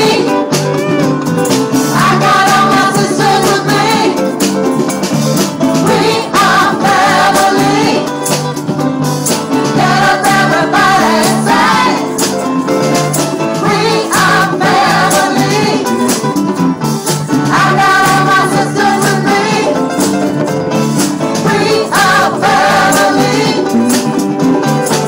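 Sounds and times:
drums: 0:00.0 - 0:25.0
keyboard: 0:00.0 - 0:25.0
tambourine: 0:00.0 - 0:25.0
women singing together: 0:01.9 - 0:04.4, 0:05.8 - 0:08.1, 0:09.8 - 0:12.2, 0:13.6 - 0:16.0, 0:17.5 - 0:19.9, 0:21.4 - 0:23.9.

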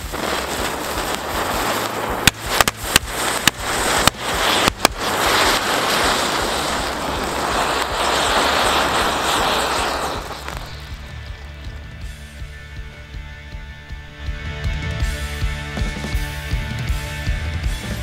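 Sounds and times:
firecracker bangs: 0:00.0 - 0:12.2
fountain fireworks hissing: 0:00.0 - 0:12.8.

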